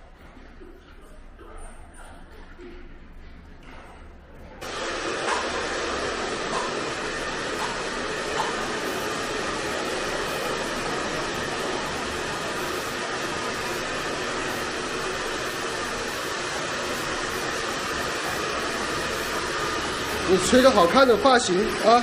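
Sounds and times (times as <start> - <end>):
hair dryer blowing: 4.6 - 22.0.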